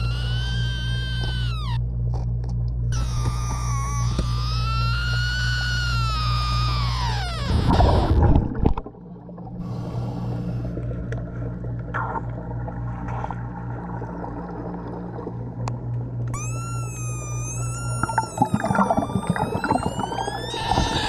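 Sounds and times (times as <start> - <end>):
underwater low hum: 0.0 - 21.0
wavering whistle: 16.4 - 21.0.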